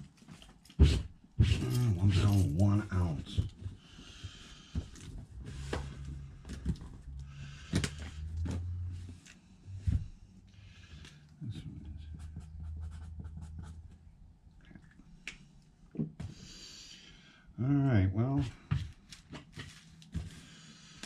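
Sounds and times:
cardboard boxes rustling and scraping: 4.8 - 10.2, 19.1 - 20.6.

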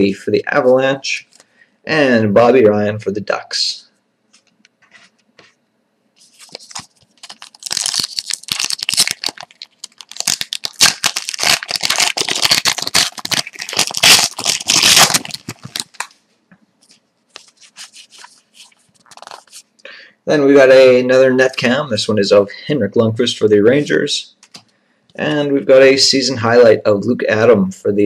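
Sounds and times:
foil wrapper tearing and crinkling: 6.3 - 16.1, 17.4 - 19.6.

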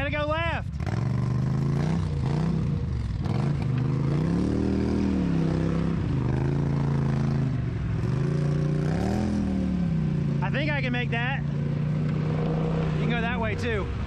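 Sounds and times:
atv engine revving: 0.6 - 14.0.

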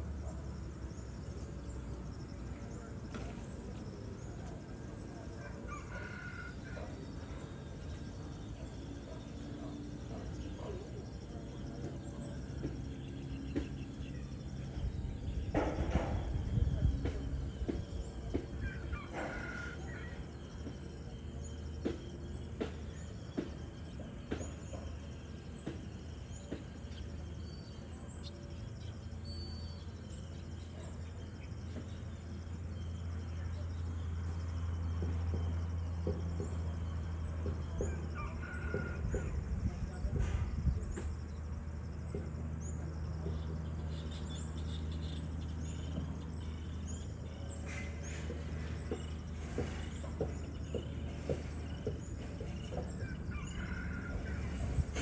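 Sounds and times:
rooster crowing: 5.4 - 7.2, 18.6 - 20.4, 38.0 - 39.5, 52.7 - 55.0.

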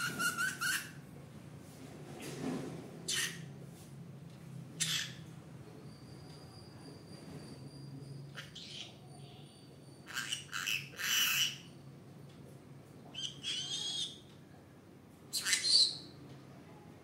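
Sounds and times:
parrot high-pitched calls: 0.0 - 1.0, 3.1 - 3.5, 4.8 - 5.2, 8.3 - 9.0, 10.0 - 11.8, 13.1 - 14.3, 15.3 - 16.1.

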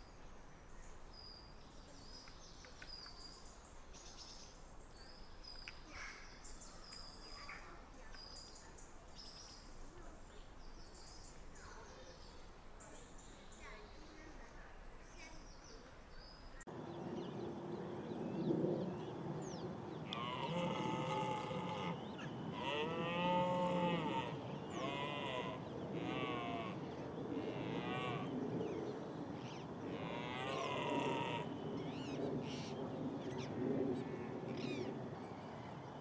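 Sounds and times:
deer stag roaring: 20.0 - 28.3, 29.9 - 31.6.

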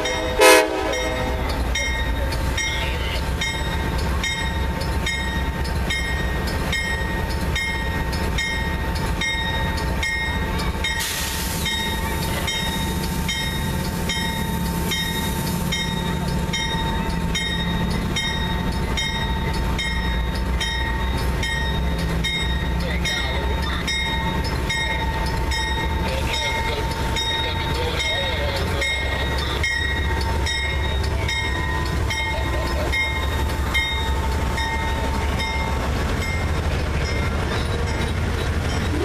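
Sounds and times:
diesel locomotive engine rumbling: 0.0 - 39.0
bell ringing: 11.7 - 39.0.

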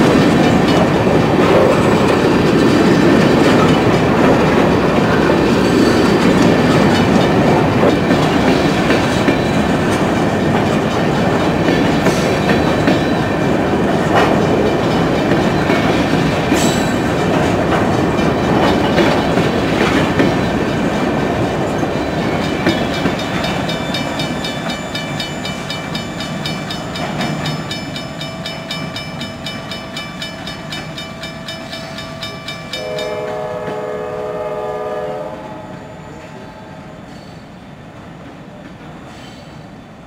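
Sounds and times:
freight train cars rolling past: 0.0 - 40.0
distant train horn: 32.7 - 36.9.

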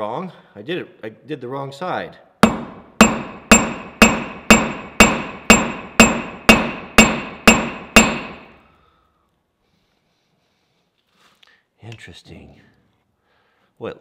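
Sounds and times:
hammer striking metal on anvil: 2.4 - 8.6.

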